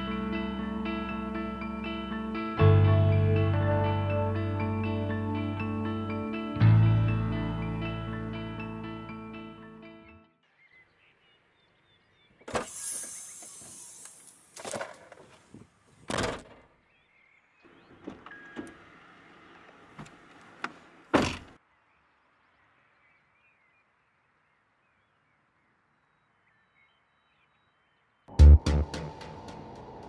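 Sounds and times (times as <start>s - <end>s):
car door shutting: 20.0s - 21.6s.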